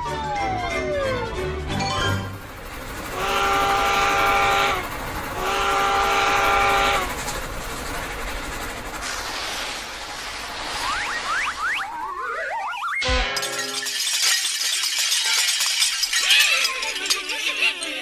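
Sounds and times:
steam locomotive whistle: 3.1s - 7.2s
rushing hiss: 5.5s - 11.3s
rising whistle glide: 10.6s - 13.0s.

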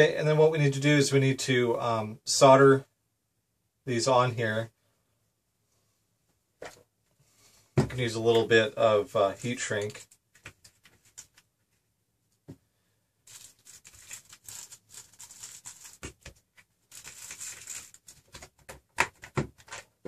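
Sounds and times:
rustling: 13.2s - 20.0s.

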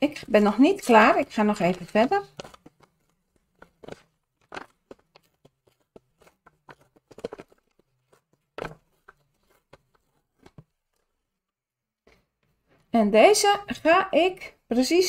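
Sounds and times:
paper crinkling and tearing: 0.9s - 10.7s.

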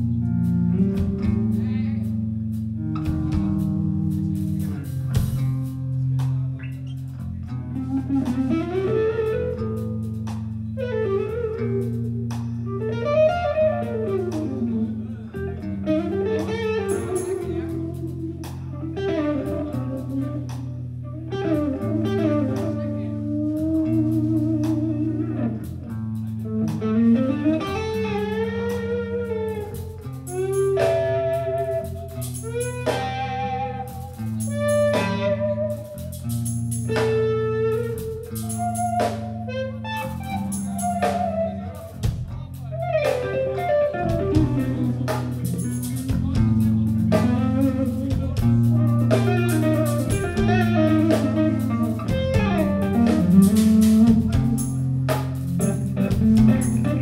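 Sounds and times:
bass notes: 0.0s - 57.0s
electric guitar melody: 0.0s - 57.0s
drum kit hits: 3.0s - 6.5s, 44.0s - 57.0s.

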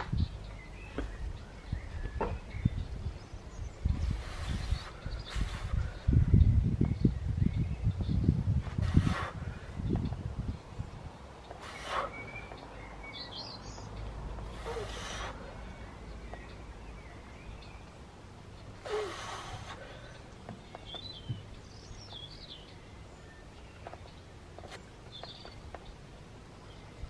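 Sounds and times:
birds chirping: 0.0s - 27.0s
forceful hissing exhalations: 4.0s - 6.0s, 8.6s - 9.6s, 11.6s - 12.2s, 14.4s - 15.6s, 18.8s - 20.2s.

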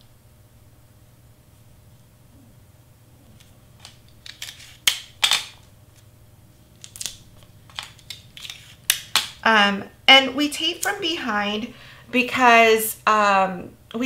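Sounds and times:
cardstock scraping and rustling: 7.7s - 8.8s.

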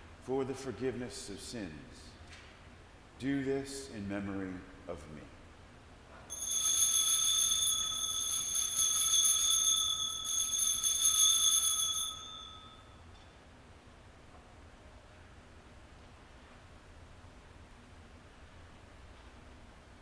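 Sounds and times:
altar bells ringing: 6.3s - 13.0s.

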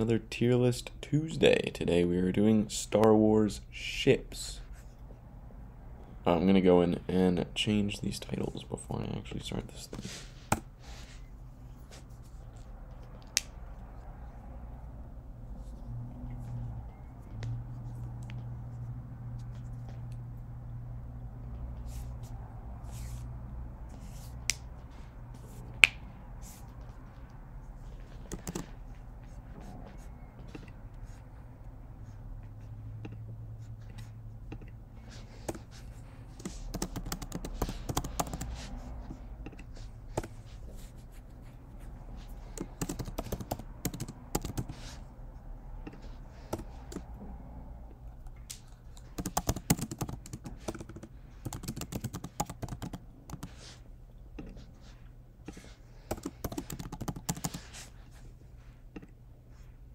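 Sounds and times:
typing on computer keyboard: 28.2s - 28.7s, 36.4s - 38.5s, 42.6s - 44.7s, 48.6s - 53.6s, 56.1s - 57.7s.

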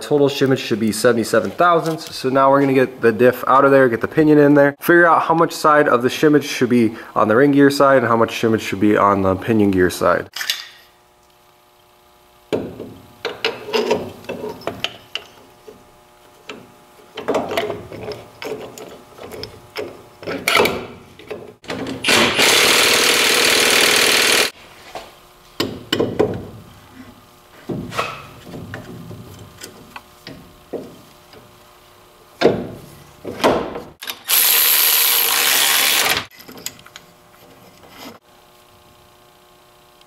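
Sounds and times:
power tool burst: 22.0s - 24.5s, 34.0s - 36.3s.

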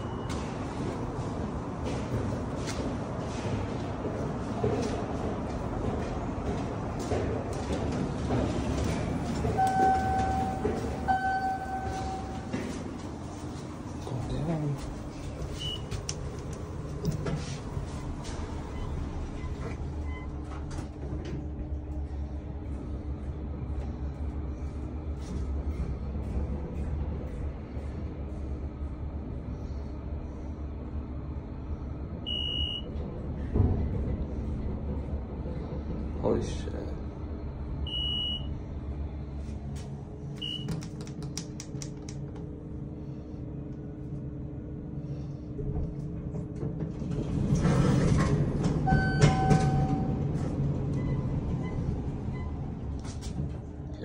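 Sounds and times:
constant hum: 0.0s - 54.0s
elevator car rumbling: 0.0s - 54.0s
short high electronic beep: 9.6s - 12.4s.

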